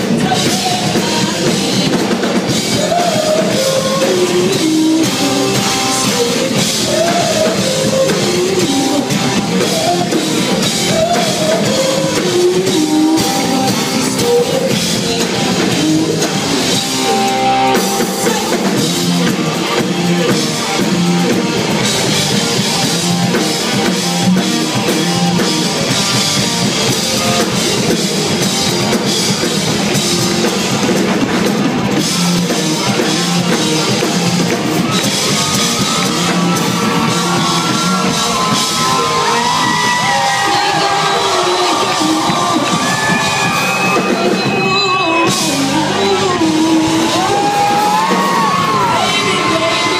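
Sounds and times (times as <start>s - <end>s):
lead vocal singing: 0.0s - 19.8s, 34.8s - 49.9s
drum kit: 0.0s - 49.9s
electric guitars: 0.0s - 49.9s.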